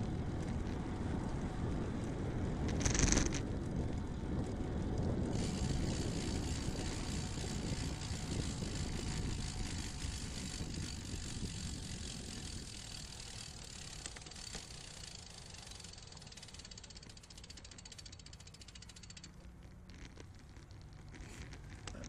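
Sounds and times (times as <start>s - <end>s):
wind rumbling on microphone: 0.0s - 14.8s
tyres humming on asphalt: 0.0s - 22.0s.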